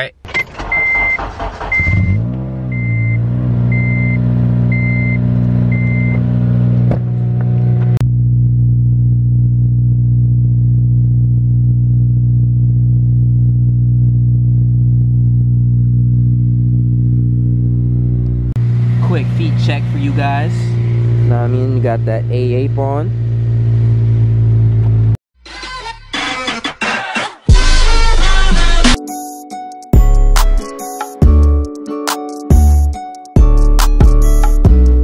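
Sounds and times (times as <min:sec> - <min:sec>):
car engine starting and idling: 0:00.1 - 0:26.4.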